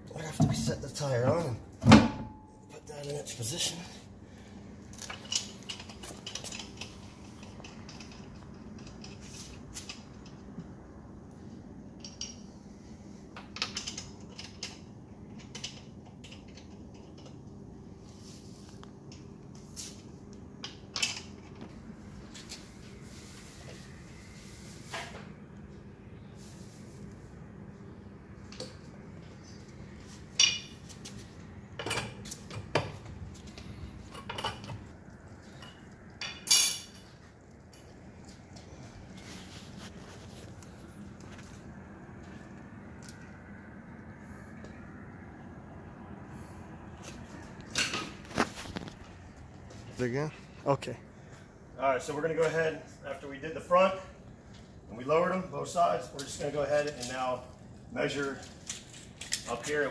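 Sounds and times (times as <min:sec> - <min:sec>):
steady low hum: 0:00.0 - 0:59.9
metal tools clinking: 0:35.6 - 0:38.0.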